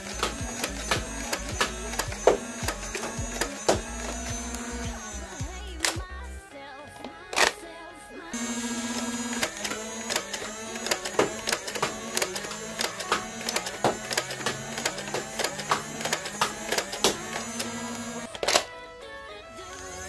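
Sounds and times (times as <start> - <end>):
sharp clicks of darts firing: 0.0 - 3.9, 9.4 - 18.7
toy blaster motors whirring: 0.0 - 6.1, 7.3 - 7.6, 8.3 - 18.8, 19.5 - 20.0.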